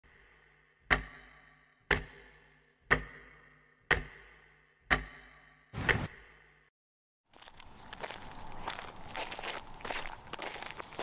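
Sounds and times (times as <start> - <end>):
clock ticking: 0.9 - 1.3, 1.9 - 5.2.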